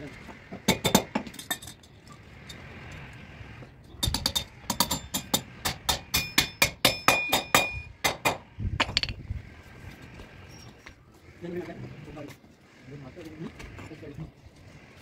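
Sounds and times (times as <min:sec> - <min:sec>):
hammer striking metal rail: 0:04.0 - 0:09.1.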